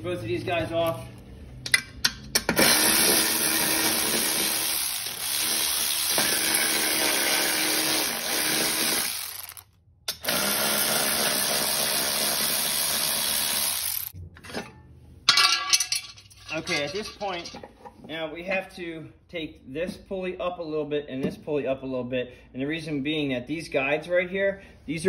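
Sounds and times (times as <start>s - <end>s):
cordless electric ratchet running: 2.6s - 14.2s.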